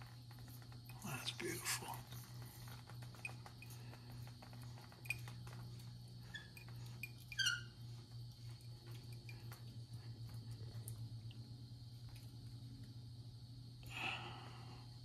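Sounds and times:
faint low hum: 0.0 - 15.0
valve handle squeak: 6.2 - 8.0.

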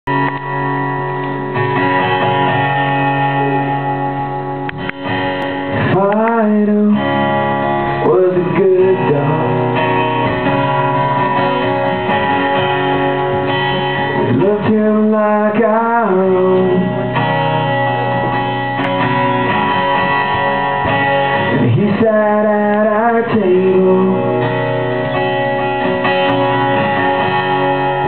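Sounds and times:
acoustic guitar strumming: 0.1 - 28.0
man singing: 5.8 - 10.1, 14.1 - 17.3, 21.4 - 24.8.

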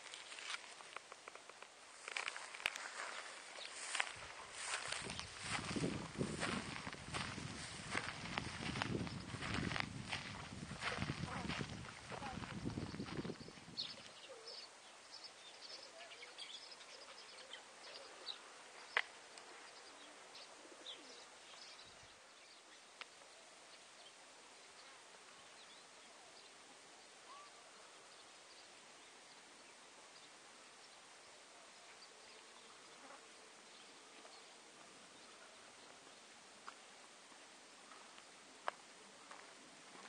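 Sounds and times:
faint bird chirps: 19.6 - 36.1.

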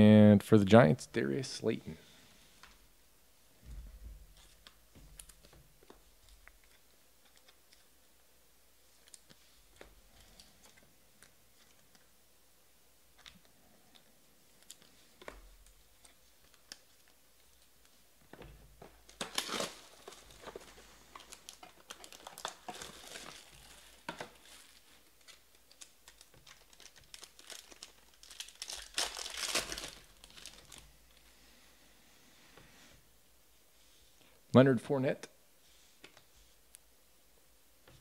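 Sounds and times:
foil wrapper tearing and crinkling: 19.1 - 30.8.

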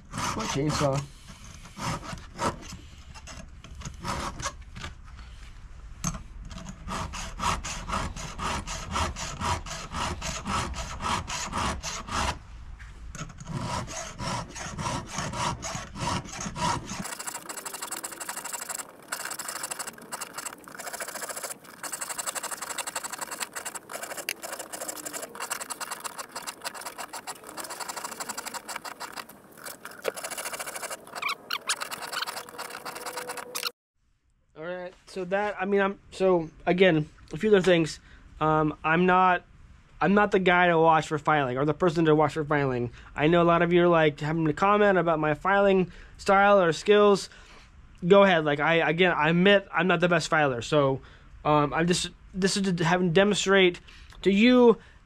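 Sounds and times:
file rasping on chainsaw chain: 0.0 - 1.1, 6.8 - 12.4, 13.5 - 33.7.

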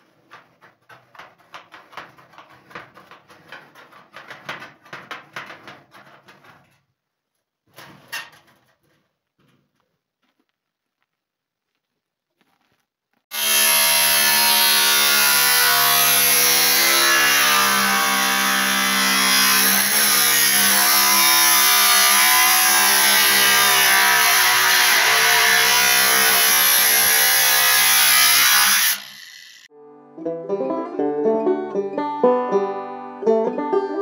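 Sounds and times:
angle grinder cutting metal: 13.3 - 29.7.

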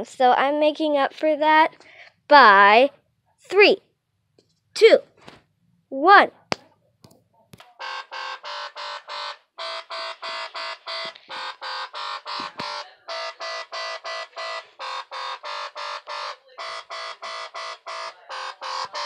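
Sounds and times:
electronic music with buzzy notes: 7.7 - 19.0.

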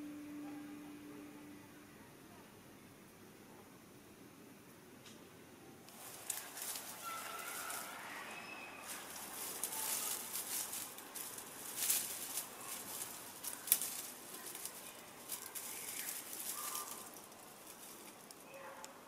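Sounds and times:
rustling through dry ground cover: 5.9 - 19.0.

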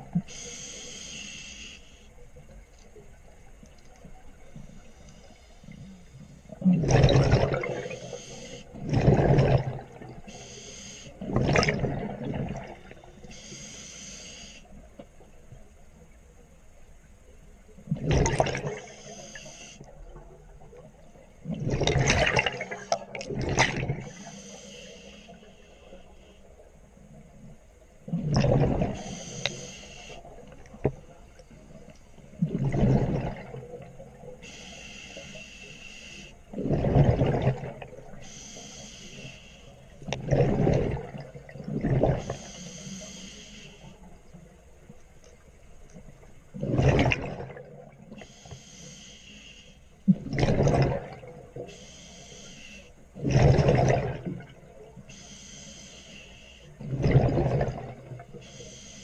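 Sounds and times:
regulator inhalation hiss: 0.2 - 2.3, 7.8 - 8.8, 10.2 - 11.3, 13.1 - 14.8, 18.7 - 19.9, 24.0 - 26.6, 29.0 - 30.5, 34.3 - 36.5, 38.1 - 40.0, 42.2 - 44.1, 48.2 - 50.0, 51.6 - 53.2, 55.1 - 56.8, 58.3 - 59.0
gurgling exhaled bubbles: 6.5 - 10.3, 11.2 - 13.0, 17.9 - 19.0, 21.4 - 24.2, 28.1 - 29.2, 32.4 - 34.2, 36.5 - 38.2, 40.1 - 42.4, 46.5 - 48.0, 50.1 - 51.6, 53.2 - 54.7, 56.8 - 58.3.

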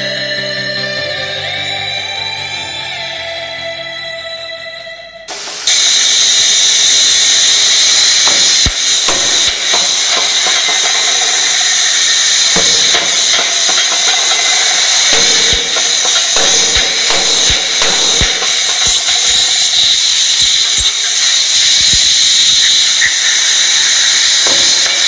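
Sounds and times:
loud steady hissing: 5.2 - 25.0.

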